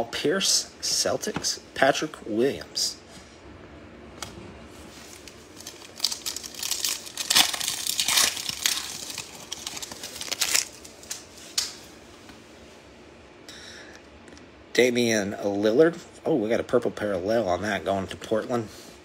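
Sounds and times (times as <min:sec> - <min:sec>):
foil wrapper crinkling: 0:05.0 - 0:11.8
foil tearing: 0:05.1 - 0:11.3.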